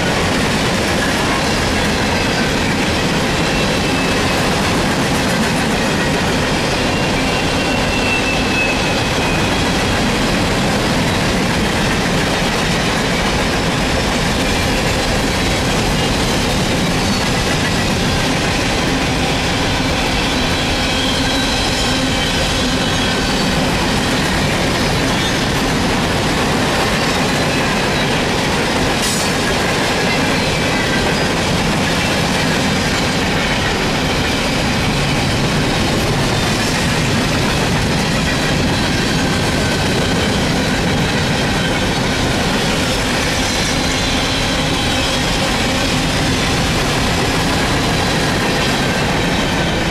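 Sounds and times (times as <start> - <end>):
train wheels rumbling on rail: 0.0 - 49.9
high-pitched wheel squeal: 6.7 - 9.8, 20.0 - 23.7.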